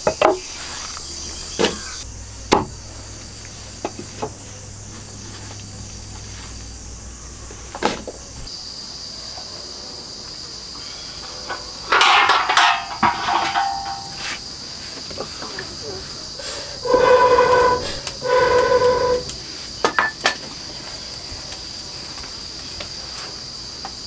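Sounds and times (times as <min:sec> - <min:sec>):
high-pitched insect buzz: 0:00.2 - 0:09.2, 0:15.8 - 0:19.9
iron pot clattering on grate: 0:11.5 - 0:14.4, 0:16.8 - 0:20.5.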